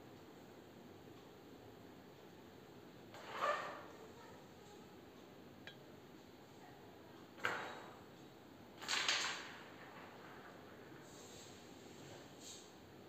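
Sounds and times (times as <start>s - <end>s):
carrom striker hitting coins: 8.8s - 10.5s.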